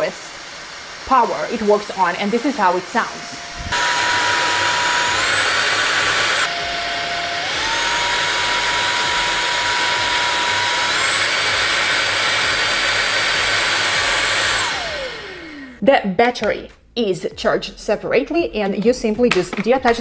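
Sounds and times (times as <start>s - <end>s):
cordless vacuum motor whine: 1.8s - 15.8s.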